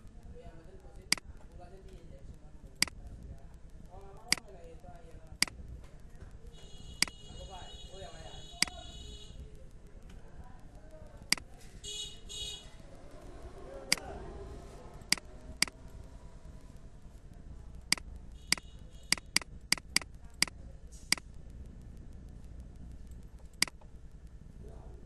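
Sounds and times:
low steady hum: 0:00.0 - 0:25.0
computer mouse clicks: 0:01.0 - 0:01.4, 0:04.2 - 0:04.5, 0:10.8 - 0:11.5, 0:13.9 - 0:14.1, 0:15.0 - 0:15.8, 0:16.7 - 0:24.4.

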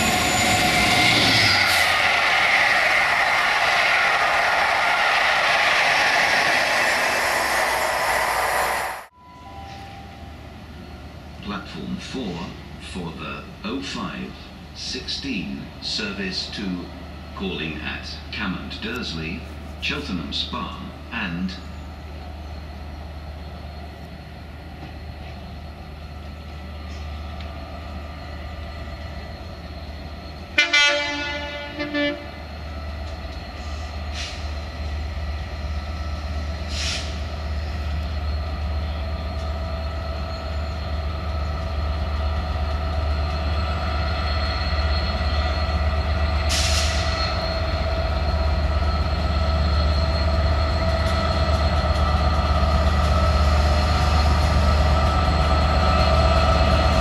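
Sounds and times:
train rumbling: 0:00.0 - 0:57.0
train horn blasts: 0:30.6 - 0:32.4
short hisses: 0:36.7 - 0:37.2.

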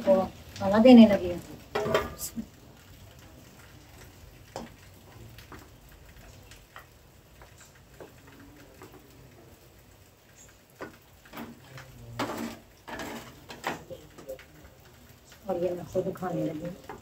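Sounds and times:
metal spatula scraping a pan: 0:12.2 - 0:14.0.

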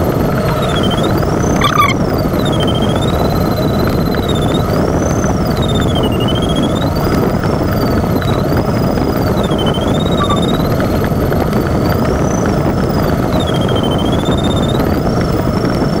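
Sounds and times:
electronic tone rising and falling: 0:00.0 - 0:04.6, 0:09.2 - 0:10.9.

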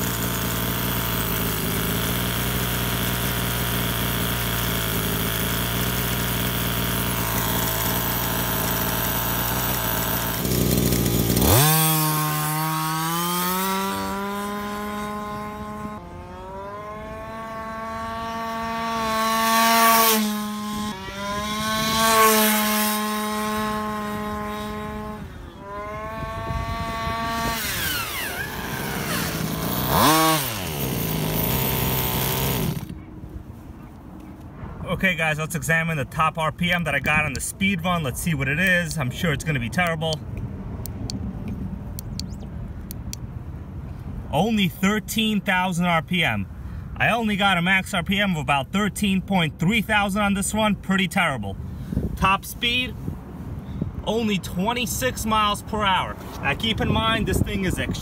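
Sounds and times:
small two-stroke engine: 0:00.0 - 0:33.1, 0:54.1 - 0:58.0.

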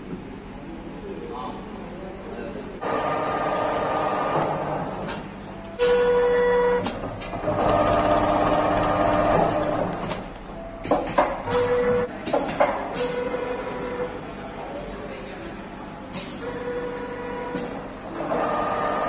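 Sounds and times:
machine whine: 0:05.8 - 0:12.1
sewing machine rapid stitching: 0:07.4 - 0:10.1.

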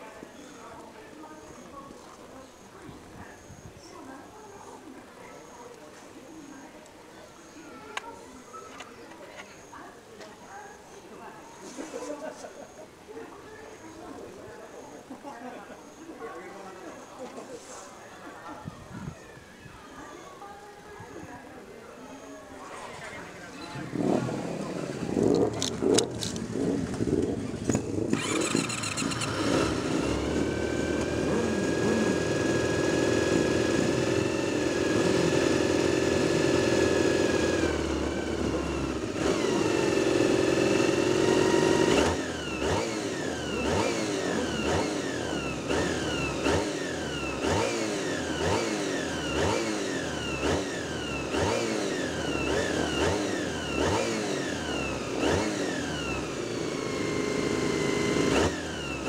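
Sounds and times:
racing motorcycle engines revving: 0:22.6 - 0:59.0
motorcycle throttle blips: 0:22.7 - 0:59.0.

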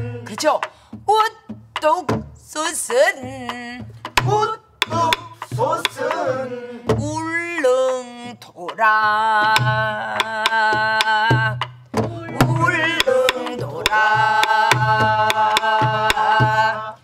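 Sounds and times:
woman singing folk song: 0:00.0 - 0:04.6, 0:06.9 - 0:17.0
drum stick clicks: 0:04.0 - 0:06.3, 0:12.9 - 0:16.4
barrel drum strokes: 0:11.0 - 0:17.0.

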